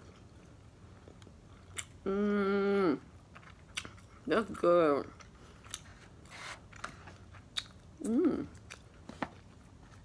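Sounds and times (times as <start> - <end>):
person chewing: 0.0 - 2.0, 3.1 - 4.2, 5.2 - 10.0
person humming briefly: 8.0 - 8.5.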